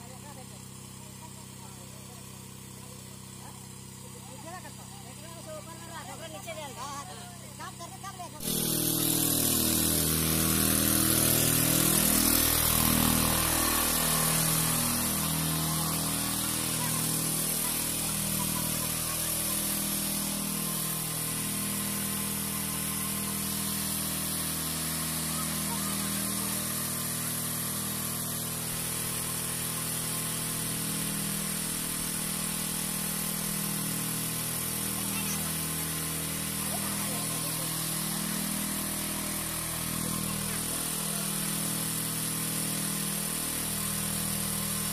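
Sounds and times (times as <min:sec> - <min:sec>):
engine-driven water pumps running: 0:00.0 - 0:44.9.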